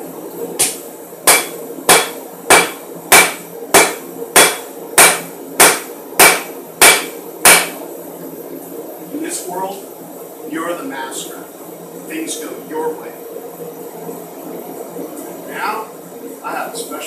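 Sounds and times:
steady hum: 0.0 - 17.0
hammer striking metal on anvil: 0.6 - 7.8.

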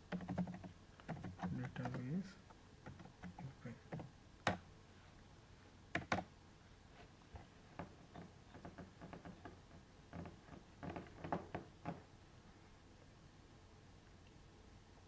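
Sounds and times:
computer keyboard keystrokes: 0.1 - 2.1, 2.8 - 4.6, 5.9 - 6.3.

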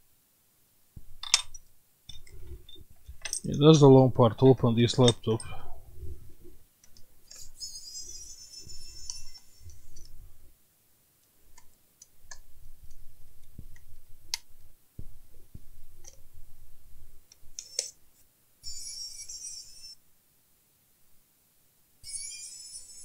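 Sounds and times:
high-pitched squeak: 7.4 - 9.8, 18.6 - 20.0, 22.0 - 23.0.

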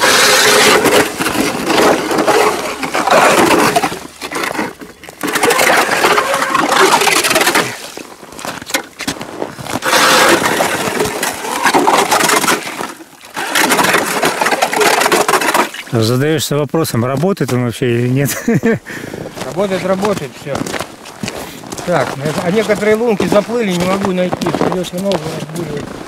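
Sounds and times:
ice auger grinding through ice: 0.0 - 16.3, 19.2 - 26.0.

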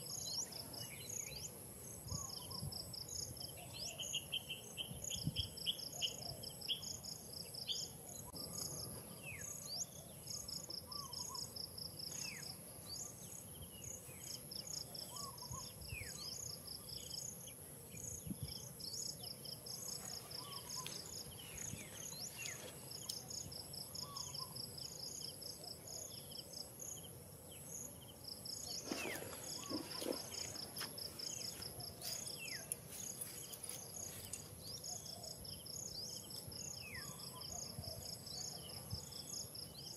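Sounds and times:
insects chirping: 0.0 - 39.9
thin insect whine: 0.0 - 39.9
bird calling: 28.7 - 32.7.

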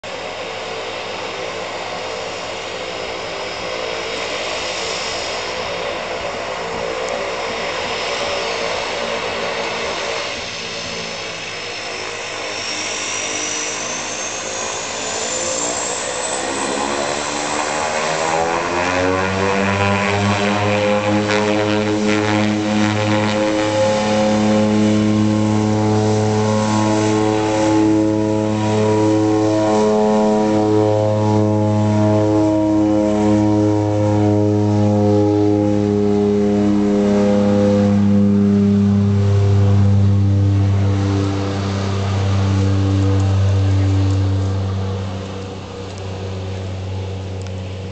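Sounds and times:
turboprop engines droning: 0.0 - 47.9.

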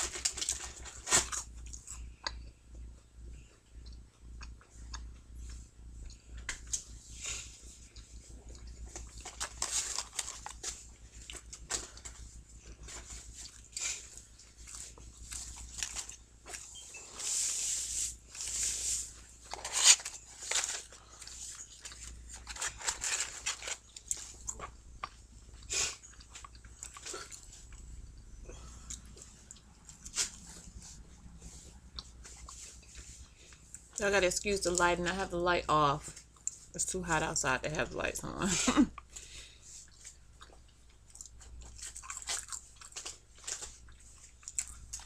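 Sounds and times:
chewing fries: 0.0 - 34.9, 36.0 - 36.9, 38.6 - 45.0
paper carton crinkling: 8.9 - 13.7, 17.5 - 24.4.

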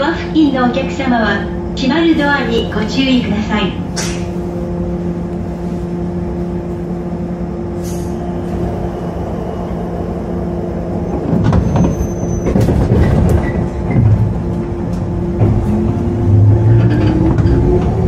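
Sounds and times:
train doors closing: 0.0 - 18.0.

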